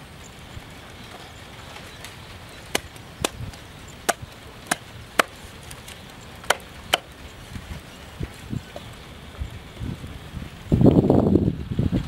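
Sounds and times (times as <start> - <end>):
cleaver chopping on wooden block: 4.1 - 5.4, 6.4 - 7.1.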